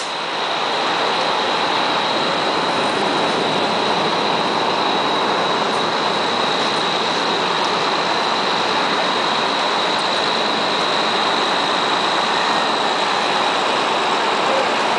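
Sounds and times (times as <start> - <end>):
faint high whine: 0.0 - 14.9
street noise: 0.0 - 14.9.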